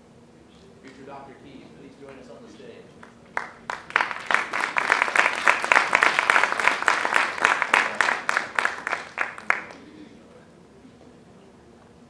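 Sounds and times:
audience applauding: 3.0s - 9.9s.

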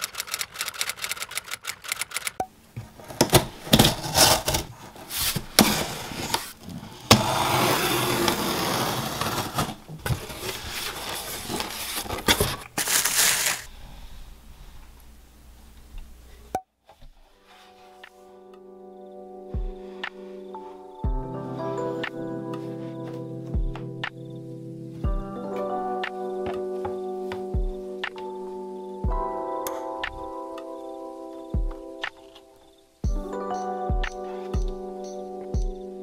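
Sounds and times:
typewriter key clicks: 0.0s - 2.5s
utility knife slicing packing tape: 12.8s - 13.7s.

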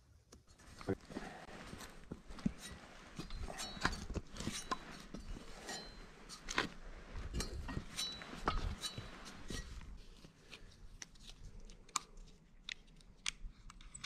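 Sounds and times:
metal ladder clinking and knocking: 1.6s - 9.9s.

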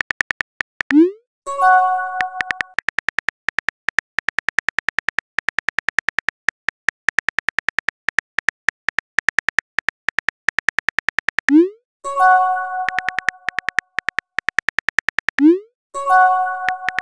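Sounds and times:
phone keyboard typing clicks: 0.0s - 1.2s, 1.9s - 11.7s, 12.7s - 15.7s, 16.5s - 17.0s.

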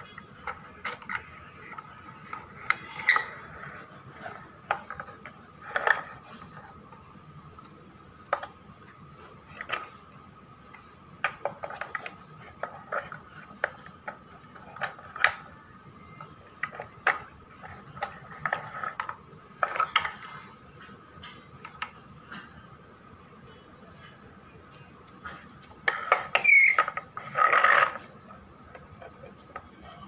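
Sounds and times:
faint steady high tone: 14.3s - 27.2s.

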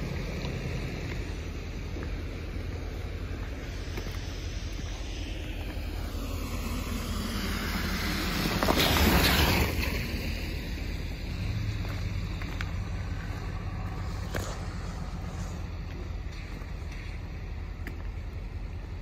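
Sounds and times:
low rumble of engines: 0.0s - 19.0s
car tyres hissing on wet road: 2.3s - 17.3s.

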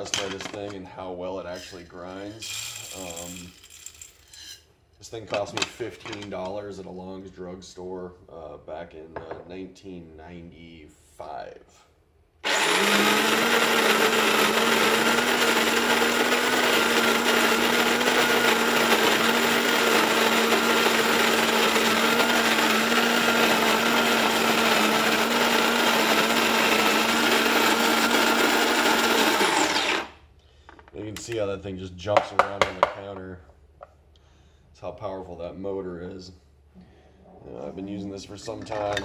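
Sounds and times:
electric coffee grinder grinding: 12.4s - 30.2s.

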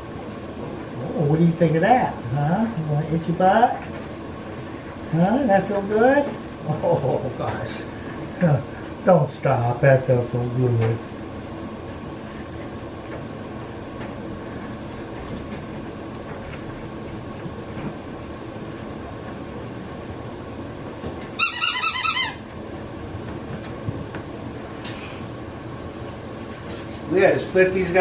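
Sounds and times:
squeaky dog toy squeaking: 21.4s - 22.5s.

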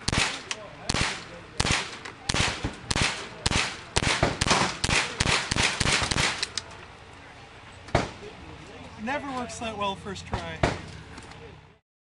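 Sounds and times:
pistol shots: 0.0s - 6.6s.

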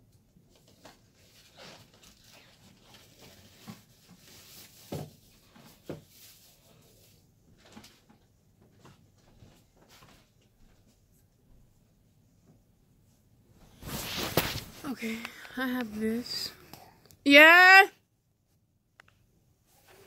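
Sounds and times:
faint rustling and handling: 0.2s - 17.5s, 18.4s - 20.0s.

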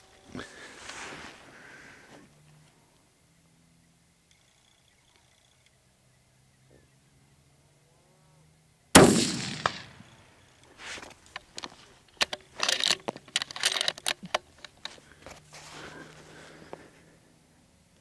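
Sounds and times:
rifle shot: 9.0s - 10.2s
irregular clicks and rustles: 10.6s - 17.0s.

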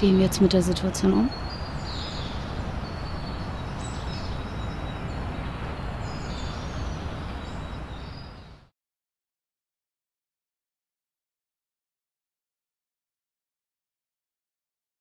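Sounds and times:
birds chirping: 0.0s - 8.7s.

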